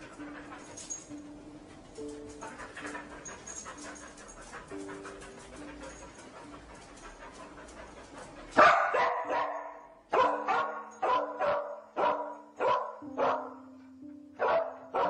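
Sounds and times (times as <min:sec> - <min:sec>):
dog panting: 0:00.0 - 0:09.5
slow music with held notes: 0:00.0 - 0:15.0
dog barking sharply: 0:08.6 - 0:13.4.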